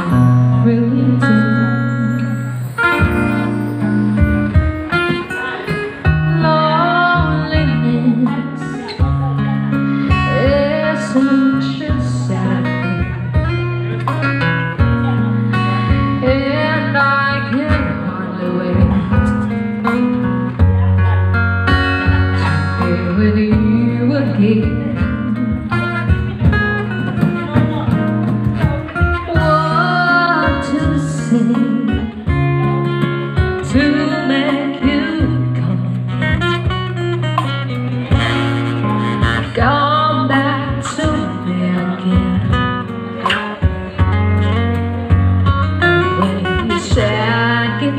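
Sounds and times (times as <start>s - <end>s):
woman singing into a microphone: 0.0s - 20.1s, 22.0s - 26.6s, 28.6s - 36.8s, 38.1s - 47.9s
strummed acoustic guitar: 0.0s - 47.9s
cajon percussion: 1.2s - 47.9s.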